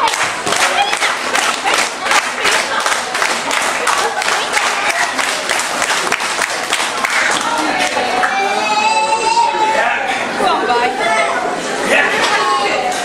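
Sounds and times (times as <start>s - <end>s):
audience clapping: 0.0s - 8.4s
shouts from crowd: 8.0s - 10.1s.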